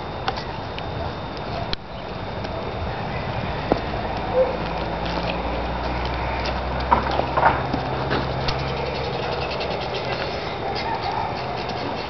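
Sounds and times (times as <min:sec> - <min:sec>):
steady low hum: 0:00.0 - 0:12.0
footsteps on grass and branches: 0:03.6 - 0:12.0.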